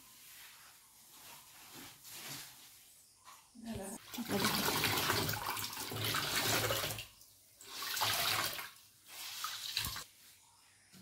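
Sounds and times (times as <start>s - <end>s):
water running and splashing: 4.0s - 10.1s.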